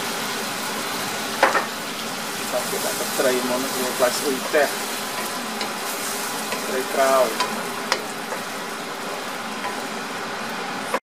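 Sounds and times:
sauce sizzling in a wok: 0.0s - 11.0s
spatula tapping pan: 2.5s - 9.9s.

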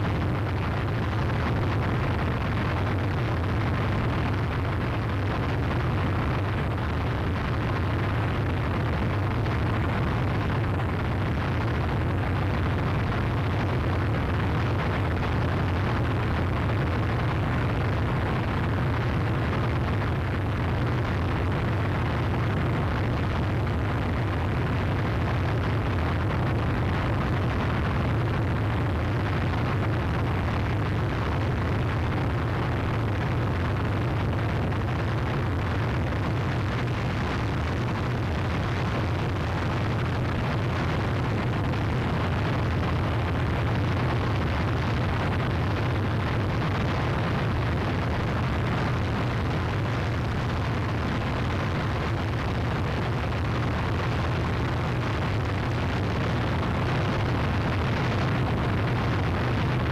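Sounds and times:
dense distorted noise: 0.0s - 59.9s.

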